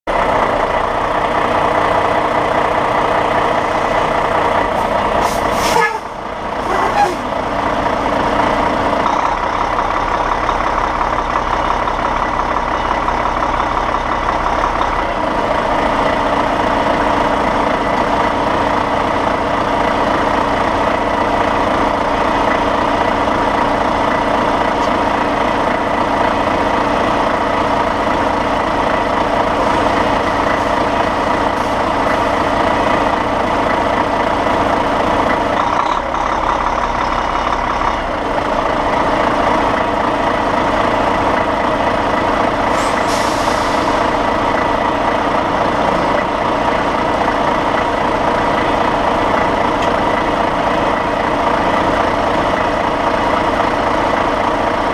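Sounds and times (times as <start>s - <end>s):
truck diesel engine running: 0.1s - 54.9s
air brakes hissing: 4.8s - 7.4s, 42.7s - 44.2s.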